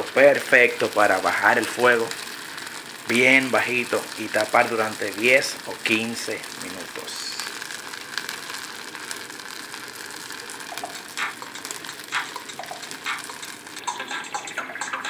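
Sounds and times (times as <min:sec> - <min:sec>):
rice sizzling in hot oil: 0:00.0 - 0:15.0.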